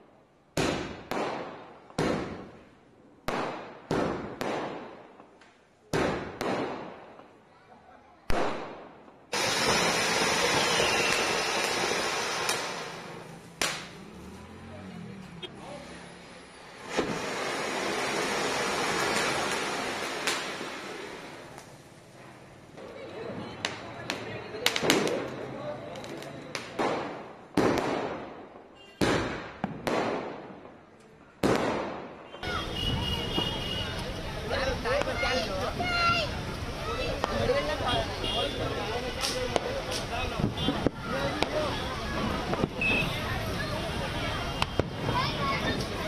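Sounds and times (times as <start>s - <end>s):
firecracker bang: 0.6s - 2.6s, 3.3s - 5.2s, 5.9s - 7.2s, 8.3s - 14.0s, 16.8s - 21.7s, 23.6s - 25.4s, 26.0s - 30.8s, 31.4s - 34.0s, 37.1s - 43.3s, 44.5s - 46.0s
firework spraying sparks hissing: 9.3s - 14.0s, 15.8s - 22.2s, 32.6s - 43.5s.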